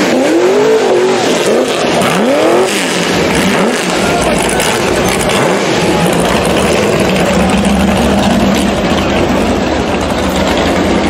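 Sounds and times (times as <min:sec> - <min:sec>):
buggy engine droning loudly: 0:00.0 - 0:11.0.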